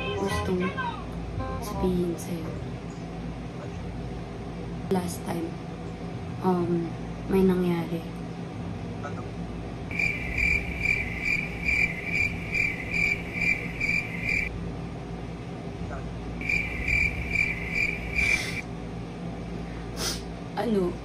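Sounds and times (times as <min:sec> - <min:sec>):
cricket chirping: 0:09.9 - 0:14.5, 0:16.4 - 0:18.6.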